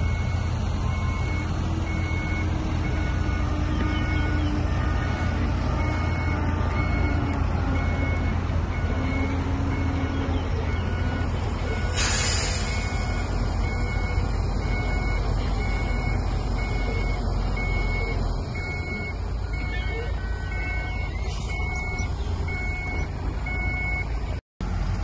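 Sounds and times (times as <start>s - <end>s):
reversing alarm beeping: 0.0s - 24.2s
diesel engines rumbling: 0.0s - 25.0s
air hiss: 11.9s - 12.9s.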